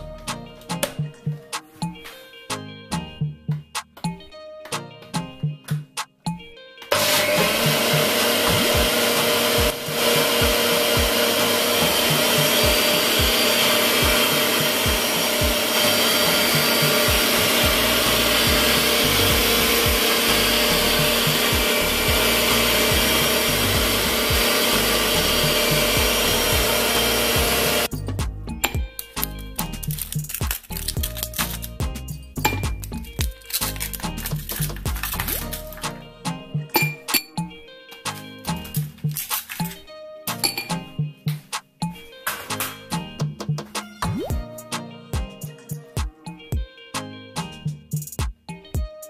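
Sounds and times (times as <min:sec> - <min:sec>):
blender motor running: 0:06.9 - 0:27.9.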